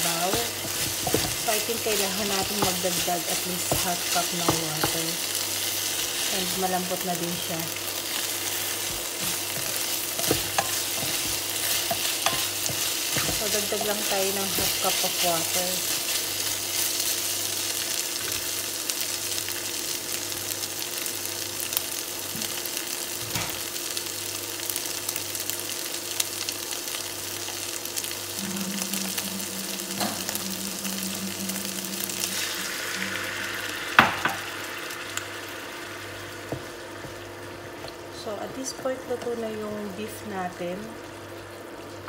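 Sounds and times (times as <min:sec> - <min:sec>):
wooden spatula stirring: 0:00.0 - 0:17.3
meat sizzling in a frying pan: 0:00.0 - 0:42.0.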